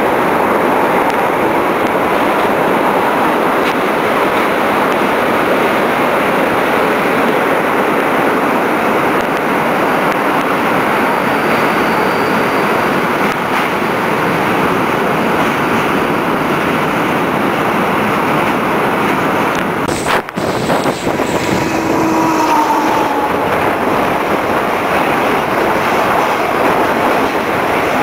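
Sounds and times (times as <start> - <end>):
electric train passing close: 0.0 - 28.0
train wheels on track: 0.0 - 28.0
wind rushing: 19.8 - 28.0
faint falling tone: 21.0 - 24.8.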